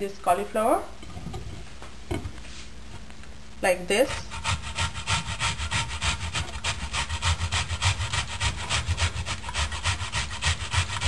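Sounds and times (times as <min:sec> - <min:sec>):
grater rasping: 0:04.1 - 0:11.0.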